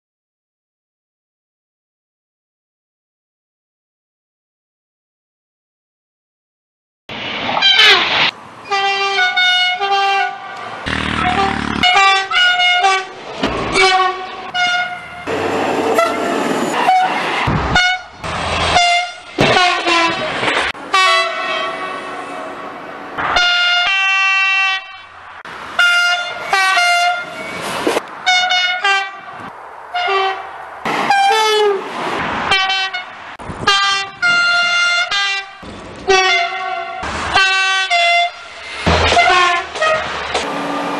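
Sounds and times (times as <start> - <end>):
passing trains: 7.1 - 40.9
train horn blasts: 8.7 - 15.3, 15.9 - 17.2, 17.8 - 20.3, 20.9 - 22.6, 25.8 - 27.6, 28.2 - 30.4, 31.1 - 31.8, 32.5 - 38.5, 39.2 - 40.8.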